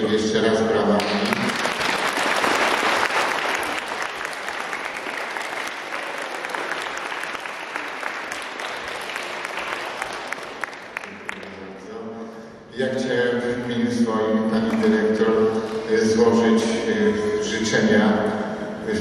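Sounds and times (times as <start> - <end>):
audience applauding: 1.0 - 11.7.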